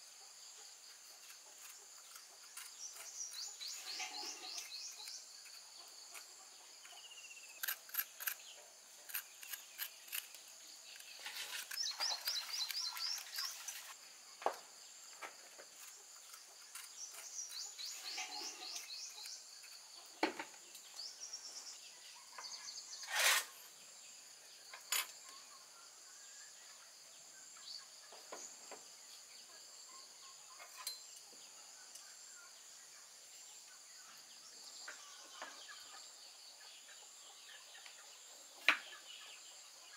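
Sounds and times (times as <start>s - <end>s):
birds chirping: 1.1s - 23.8s.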